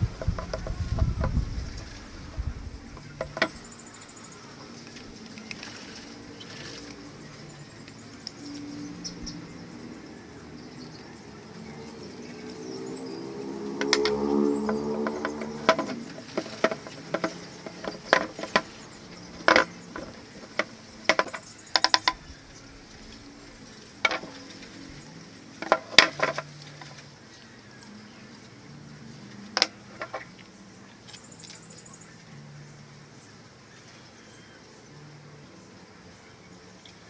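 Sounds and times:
plastic pipes clicking and knocking: 3.0s - 3.6s, 13.8s - 22.2s, 24.0s - 24.6s, 25.6s - 27.0s, 29.6s - 30.3s.

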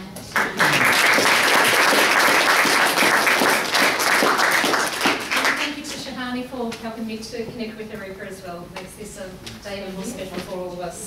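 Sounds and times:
audience applauding: 0.4s - 5.8s.

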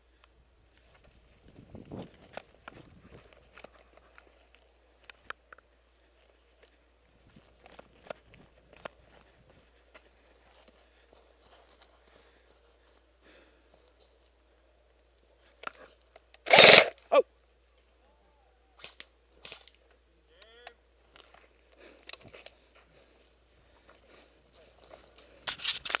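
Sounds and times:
faint crackles: 0.0s - 18.1s
airsoft gun shots: 16.5s - 16.9s.

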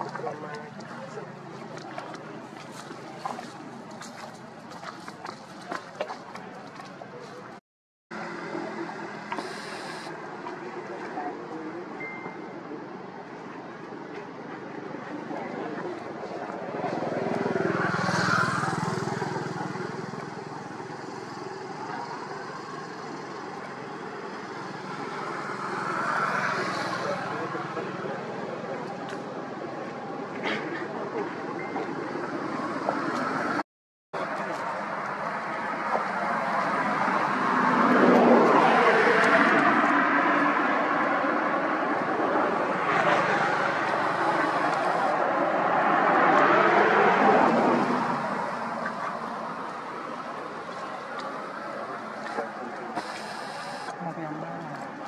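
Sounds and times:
motor traffic rumbling: 0.0s - 33.6s, 34.2s - 55.0s
vehicle approaching: 14.5s - 33.6s, 34.2s - 55.0s
vehicle engine passing by: 16.7s - 28.6s.

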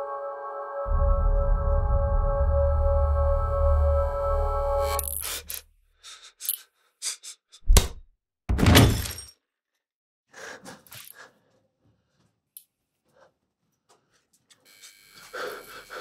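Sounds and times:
ambient synth music: 0.0s - 5.0s.

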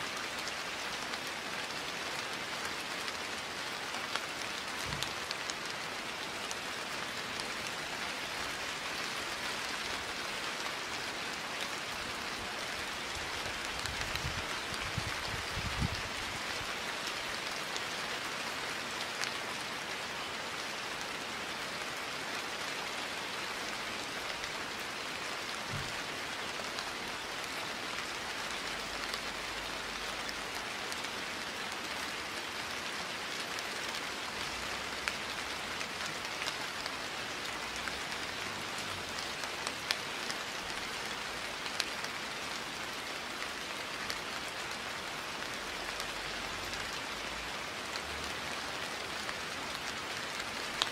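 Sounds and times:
steady rain hiss: 0.0s - 50.9s
raindrop ticks: 2.6s - 8.4s, 9.6s - 17.9s, 33.3s - 50.9s.

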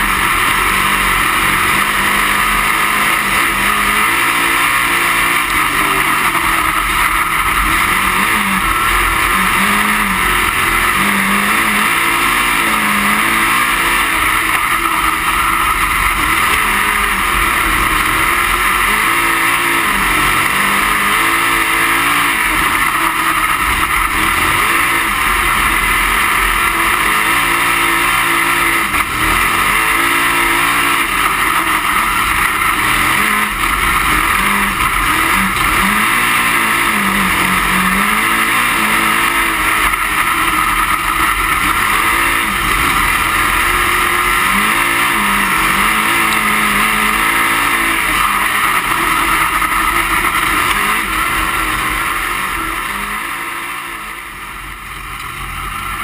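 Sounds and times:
race car engine revving: 0.0s - 56.0s
road and wind noise: 0.0s - 56.0s.

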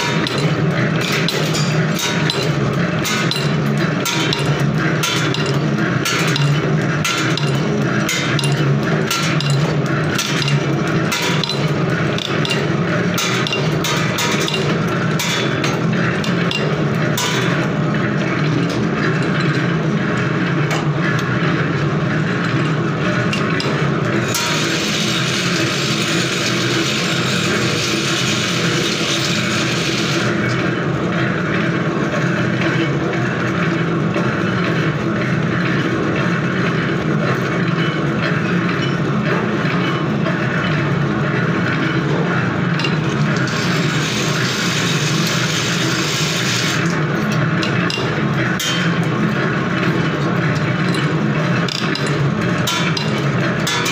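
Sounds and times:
machine humming: 0.0s - 53.9s.

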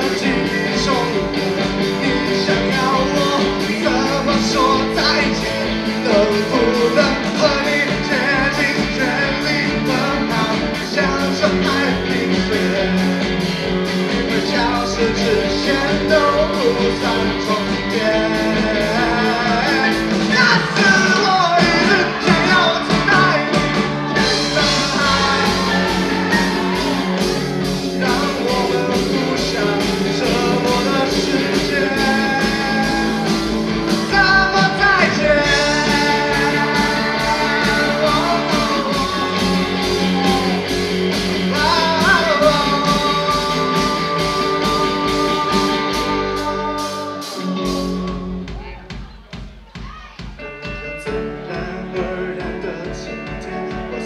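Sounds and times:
man singing: 0.0s - 48.7s, 50.4s - 54.0s
live rock band playing: 0.0s - 54.0s.

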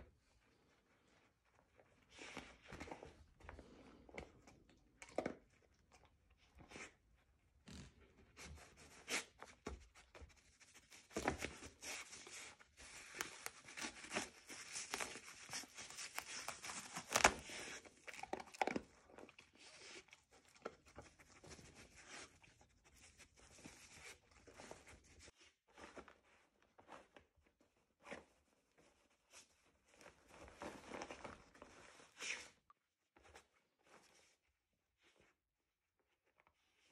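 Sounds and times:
fabric and toys rustling: 0.0s - 4.6s, 6.4s - 35.4s.

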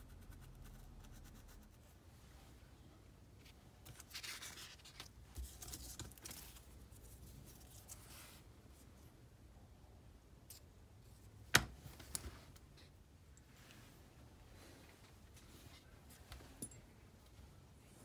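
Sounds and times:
paper rustling: 3.4s - 8.4s.

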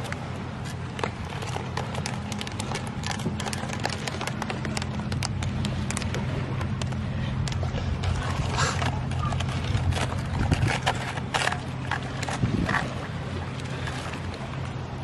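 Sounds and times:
steady low hum: 0.0s - 15.0s
crab clicking on stone: 1.0s - 7.6s.

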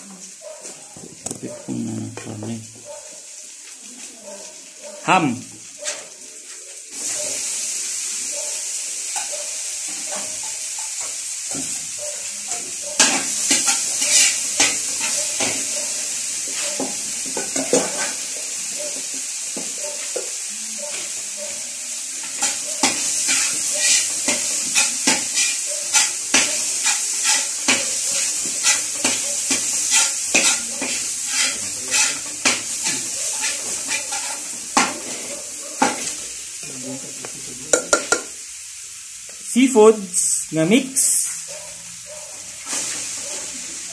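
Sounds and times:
food sizzling in hot oil: 0.0s - 43.9s
spatula scraping a wok: 5.8s - 6.2s, 8.6s - 36.5s, 42.3s - 43.7s.

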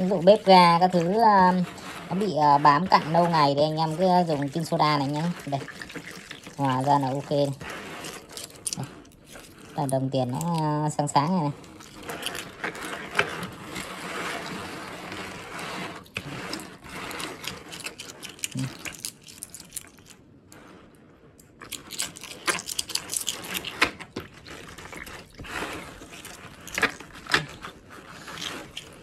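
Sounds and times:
water swishing: 0.0s - 10.6s.

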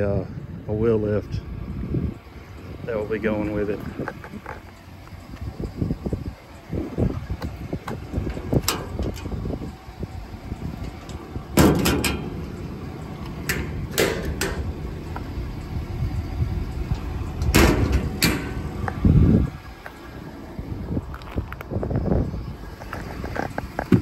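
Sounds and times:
latch clicks: 10.8s - 12.6s, 13.2s - 15.3s, 16.9s - 19.0s
toolbox doors clunking: 10.8s - 12.6s, 13.2s - 14.7s, 17.4s - 18.7s
heavy low thump: 17.0s - 19.5s.

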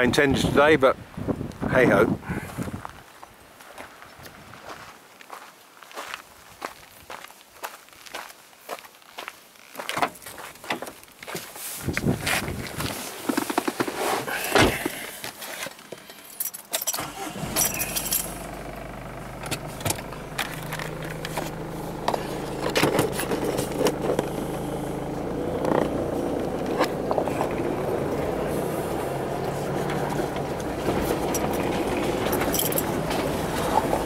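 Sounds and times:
vehicle engine running: 17.0s - 34.0s.

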